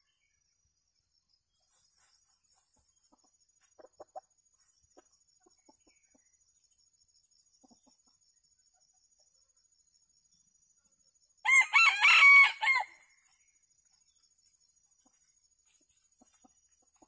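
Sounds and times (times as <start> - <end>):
soft chicken clucking: 1.6 - 10.0, 13.9 - 17.0.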